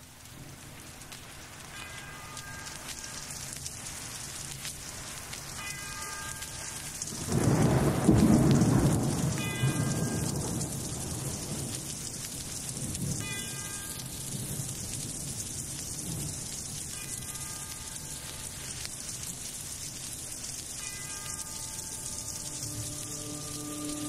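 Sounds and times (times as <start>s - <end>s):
heavy rain: 0.0s - 24.0s
thunder rolling: 7.1s - 12.0s
high pitched note: 21.8s - 24.0s
low notes: 21.8s - 24.0s.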